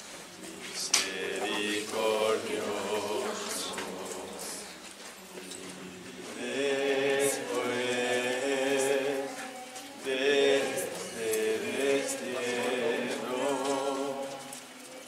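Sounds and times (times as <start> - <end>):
group singing slow chant: 0.3 - 15.0.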